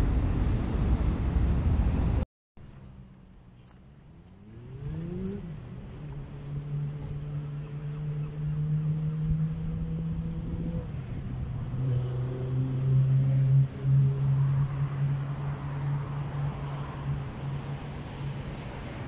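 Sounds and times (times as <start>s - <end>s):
vehicle engine revving: 4.1s - 18.7s.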